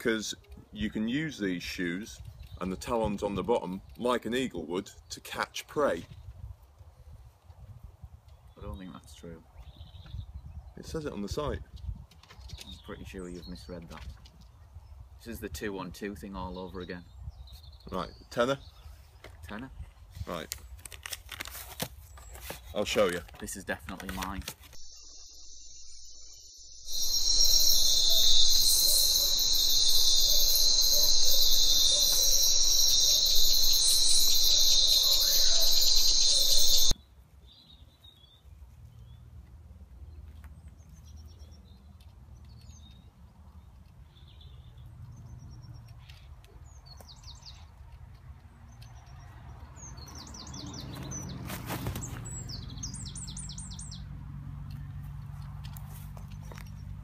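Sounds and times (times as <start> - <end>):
birds chirping: 24.8 - 37.0, 49.8 - 54.1
insect chirring: 24.8 - 37.0.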